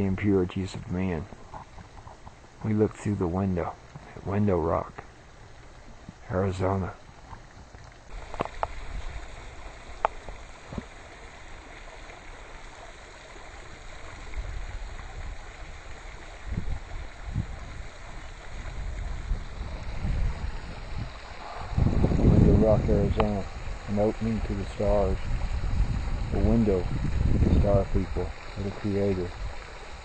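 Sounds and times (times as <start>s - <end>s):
wind buffeting microphone: 7.2s - 10.9s, 14.0s - 30.0s.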